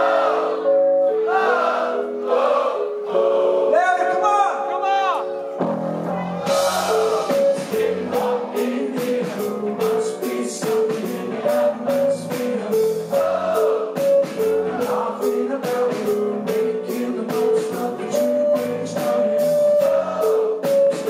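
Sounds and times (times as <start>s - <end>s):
high melodic riff: 4.1s - 21.0s
rock band playing: 5.2s - 21.0s
man singing lead vocal: 6.5s - 21.0s.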